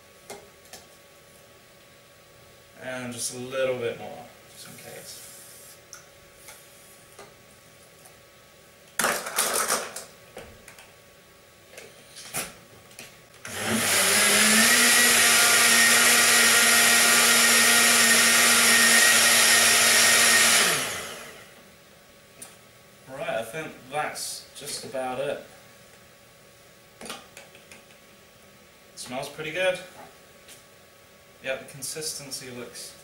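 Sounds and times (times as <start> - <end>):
blender running: 13.4 - 21.6.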